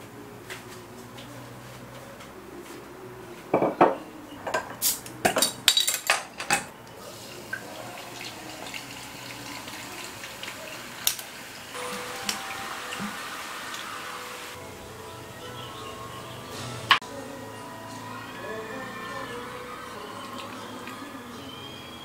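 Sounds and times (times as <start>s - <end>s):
dishes and cutlery clattering: 3.5s - 6.8s.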